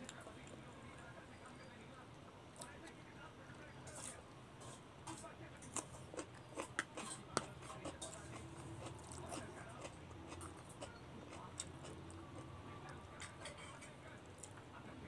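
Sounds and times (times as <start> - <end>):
soft chewing: 0.0 - 15.0
fork scraping a plate: 3.8 - 12.5, 13.1 - 14.0.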